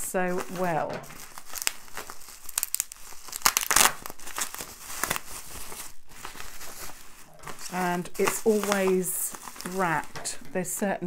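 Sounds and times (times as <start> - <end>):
bubble wrap crinkling and tearing: 0.0 - 11.0.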